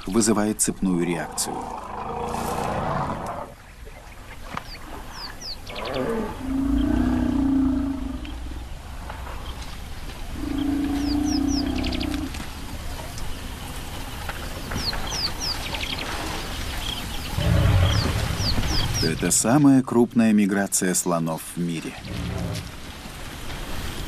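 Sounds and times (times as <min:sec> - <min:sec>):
elephants rumbling calls: 0:01.0 - 0:03.6, 0:05.6 - 0:08.8, 0:10.3 - 0:12.4, 0:17.3 - 0:19.0, 0:22.0 - 0:22.9.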